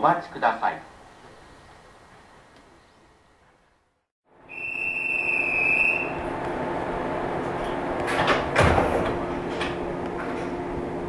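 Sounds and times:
hum of train equipment: 0:00.9 - 0:11.0
high steady tone: 0:04.4 - 0:06.3.

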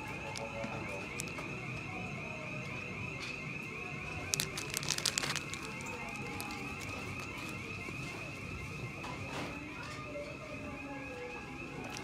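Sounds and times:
plastic packaging rattling on hooks: 0:04.3 - 0:07.0.

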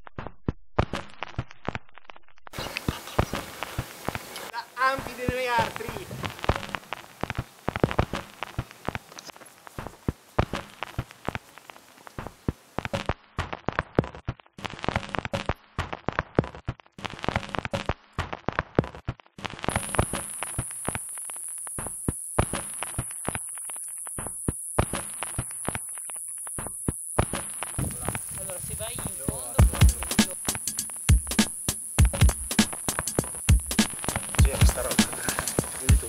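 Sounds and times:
footsteps on rocky trail: 0:02.5 - 0:15.1
steady high hiss: 0:02.6 - 0:12.8, 0:19.7 - 0:36.0.

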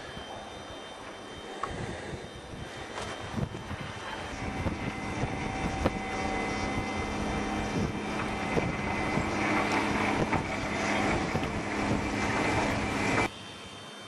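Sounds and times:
engine humming: 0:02.8 - 0:13.3.

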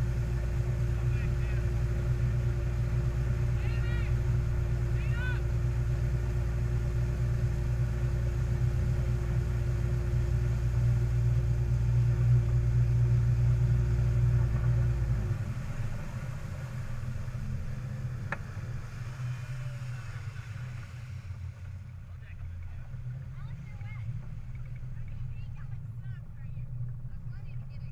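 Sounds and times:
water rushing and spraying: 0:00.0 - 0:22.0
boat engine running: 0:00.0 - 0:27.9.

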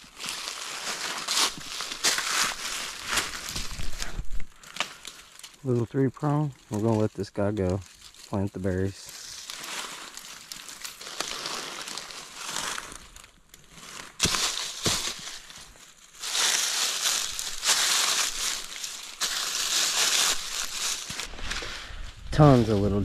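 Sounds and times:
dry leaves crunching and rustling: 0:00.0 - 0:23.0
sharp cracks: 0:09.2 - 0:21.7.

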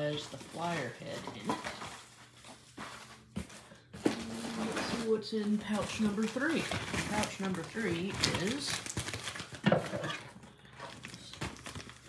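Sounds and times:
plastic pouch and box handling: 0:04.1 - 0:12.0.

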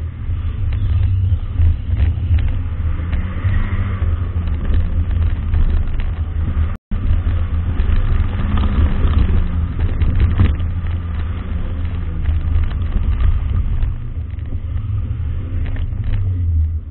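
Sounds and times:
car engine running: 0:00.0 - 0:16.9
wind and road noise: 0:00.0 - 0:16.9.

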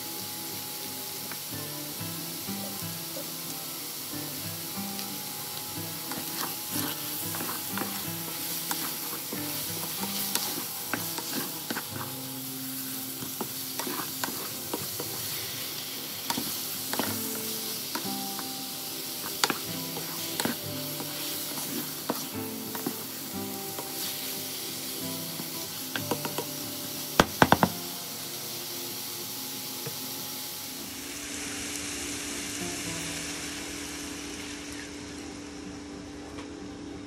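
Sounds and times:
meat sizzling in oil: 0:00.0 - 0:35.7
spatula scraping pan: 0:06.0 - 0:15.5, 0:16.3 - 0:18.0, 0:19.2 - 0:24.2.

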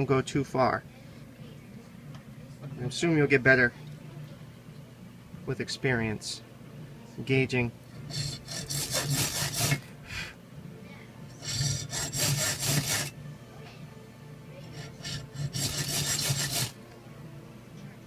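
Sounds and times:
saw rasping on metal rod: 0:08.0 - 0:09.9, 0:11.4 - 0:13.2, 0:14.6 - 0:16.8.

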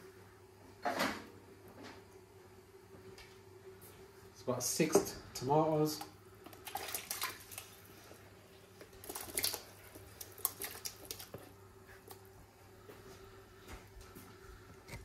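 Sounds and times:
faint steady hum: 0:00.0 - 0:15.0
soft wet squishes: 0:06.0 - 0:15.0
light water splashes: 0:06.5 - 0:08.0, 0:08.8 - 0:12.2.

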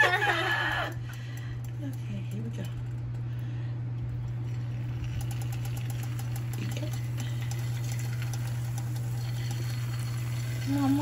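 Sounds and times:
steady low hum: 0:00.0 - 0:11.0
oil sizzling and crackling: 0:04.3 - 0:11.0.

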